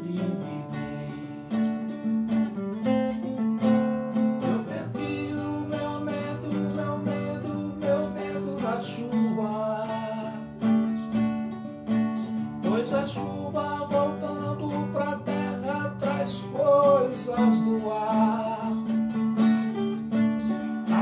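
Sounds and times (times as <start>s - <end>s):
man singing: 0.0s - 2.0s, 4.1s - 10.8s, 12.6s - 19.2s
classical guitar strumming: 0.0s - 21.0s.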